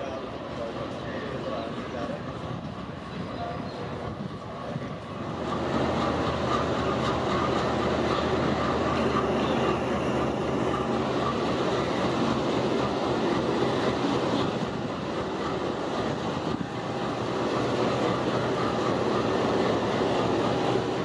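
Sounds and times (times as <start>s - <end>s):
freight train rumbling past: 0.0s - 21.0s
wagon wheels clattering on rail joints: 4.7s - 21.0s.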